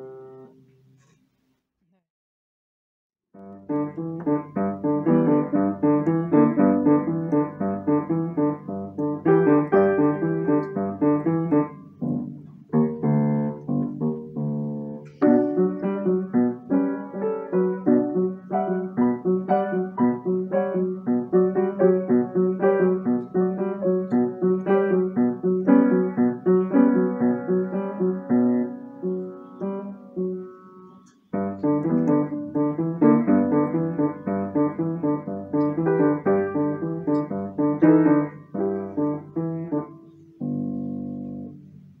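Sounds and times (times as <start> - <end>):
piano playing: 0.0 - 0.6, 3.4 - 42.0.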